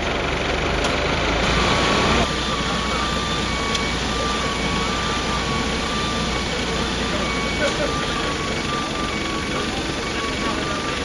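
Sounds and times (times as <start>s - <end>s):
heavy vehicle engines idling: 0.0s - 11.0s
thin steady high tone: 2.2s - 11.0s.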